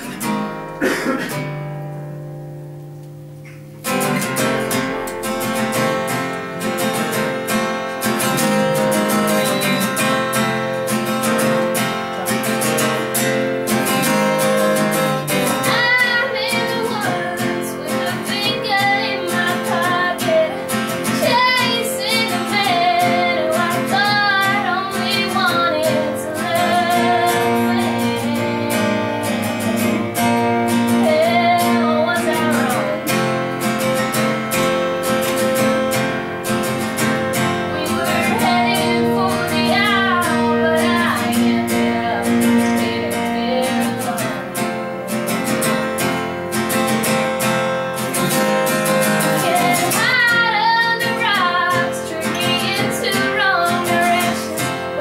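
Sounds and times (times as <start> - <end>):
acoustic guitar: 0.0 - 55.0
woman singing with vibrato: 14.0 - 33.8, 37.4 - 45.8, 48.2 - 55.0.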